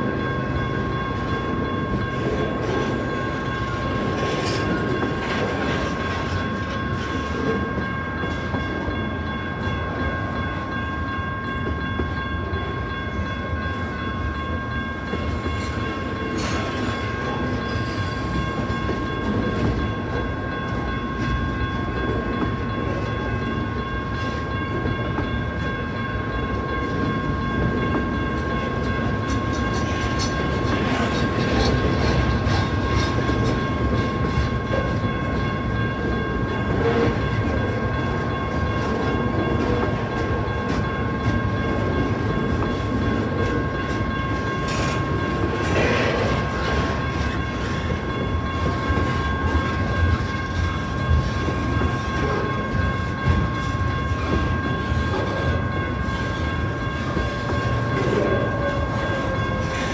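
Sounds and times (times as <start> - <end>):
crossing bells ringing: 0.0 - 59.9
freight train rumbling: 0.0 - 59.9
train wheels clattering: 26.4 - 59.9.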